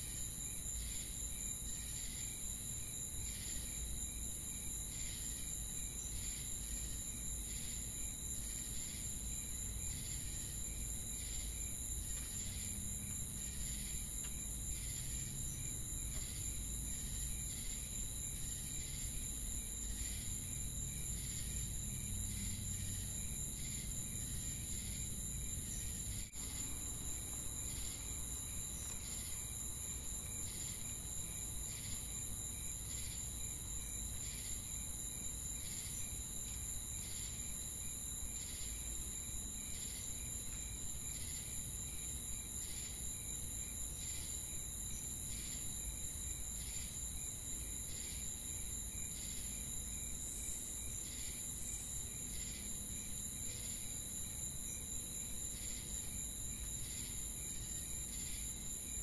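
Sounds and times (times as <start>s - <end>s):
crickets and insects chirping: 0.0s - 59.0s.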